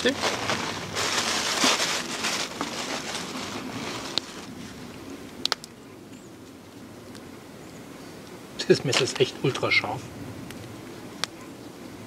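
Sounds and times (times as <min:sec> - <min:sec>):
plastic bag rustling: 0:00.0 - 0:04.8
faint outdoor background: 0:00.0 - 0:12.0.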